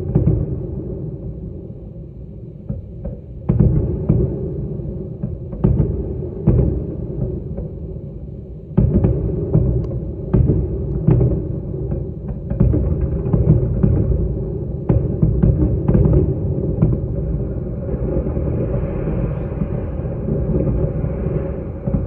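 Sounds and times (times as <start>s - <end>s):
low rumble: 3.8s - 22.0s
explosive booms: 12.4s - 22.0s.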